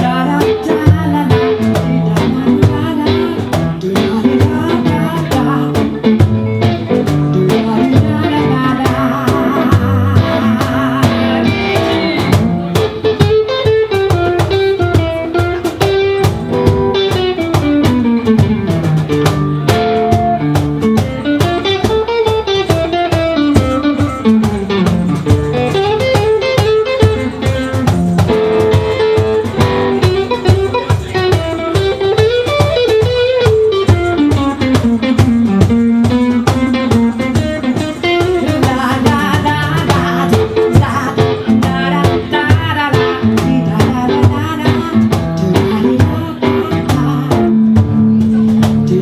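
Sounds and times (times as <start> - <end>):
cajon hits: 0.0 - 49.0
guitar solo: 0.0 - 49.0.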